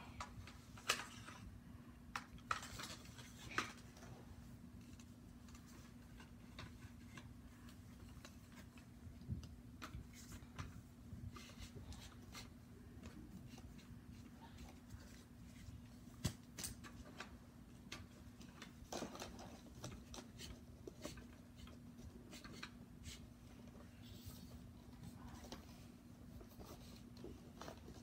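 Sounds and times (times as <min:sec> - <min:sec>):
small clicks and rustles: 0:00.1 - 0:28.0.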